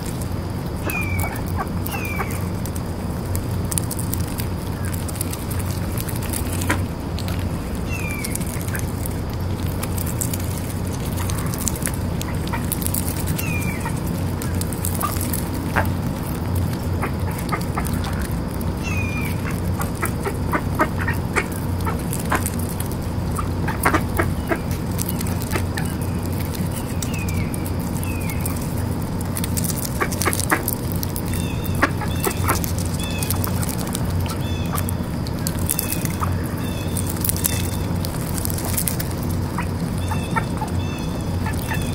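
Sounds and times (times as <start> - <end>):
ducks' bills crunching popcorn: 0.0 - 41.9
steady low hum: 0.0 - 41.9
duck calls: 18.8 - 22.5, 23.4 - 24.7, 31.8 - 32.6, 39.5 - 40.7.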